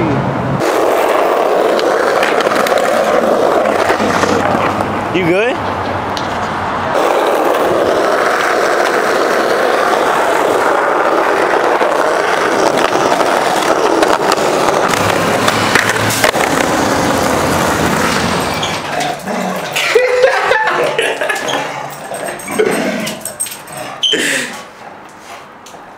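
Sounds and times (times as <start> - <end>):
skateboard wheels rolling on asphalt: 0.3 - 25.9
skateboard clacks: 0.6 - 5.0, 5.6 - 21.6.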